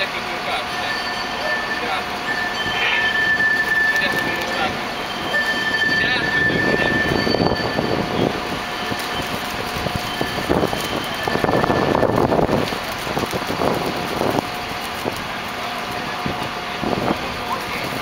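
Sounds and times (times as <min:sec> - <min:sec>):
crane engine running: 0:00.0 - 0:18.0.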